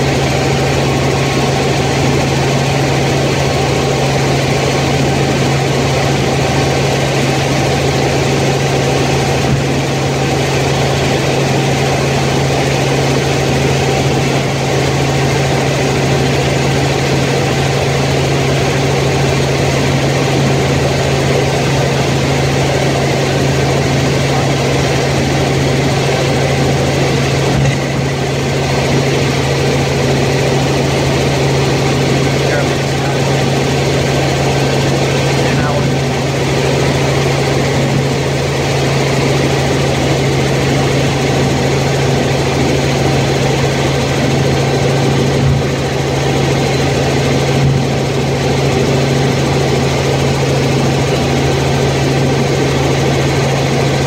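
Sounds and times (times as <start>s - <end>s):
helicopter engine and rotors droning: 0.0s - 54.0s.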